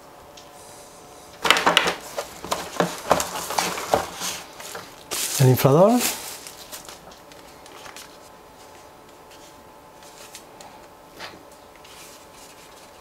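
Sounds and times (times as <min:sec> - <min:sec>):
hands handling plastic device: 0:01.4 - 0:05.3.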